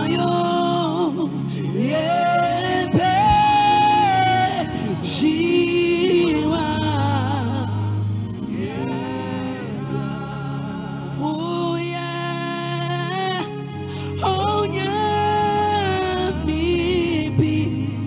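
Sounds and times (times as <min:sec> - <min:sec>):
keyboard chords: 0:00.0 - 0:18.0
man singing into a microphone: 0:00.0 - 0:18.0.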